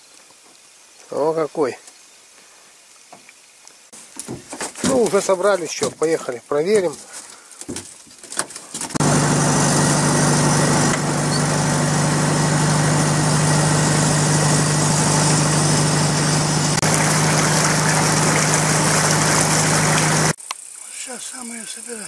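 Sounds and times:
boat motor running: 0:09.0 - 0:20.4.

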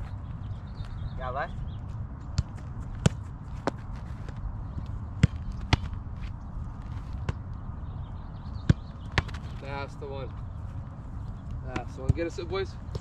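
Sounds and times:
soccer ball thudding into gloves: 0:02.3 - 0:04.4, 0:05.2 - 0:06.0, 0:08.6 - 0:09.6.

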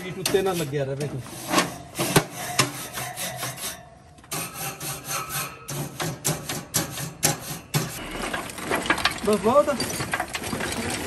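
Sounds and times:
grill brush scraping grates: 0:00.0 - 0:08.2.

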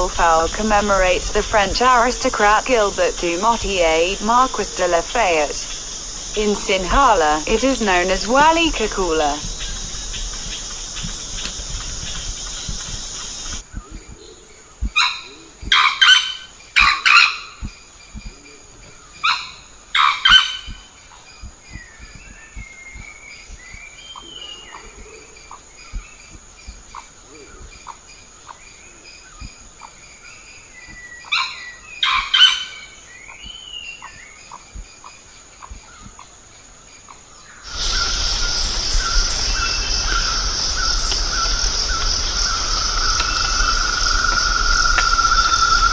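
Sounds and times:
insect chorus: 0:00.0 - 0:45.9
small birds chirping: 0:00.0 - 0:45.9
junglefowl crowing: 0:37.7 - 0:45.9.

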